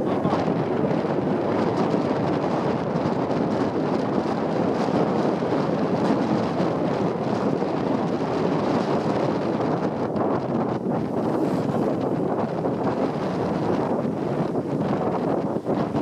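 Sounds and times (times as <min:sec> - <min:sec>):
wind rushing over microphone: 0:00.0 - 0:16.0.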